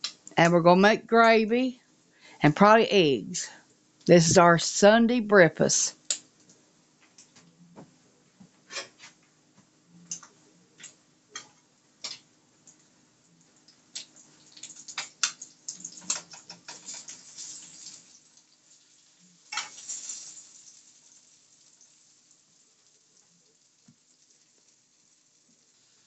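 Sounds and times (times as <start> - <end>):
ham sizzling in a frying pan: 13.5 - 26.0.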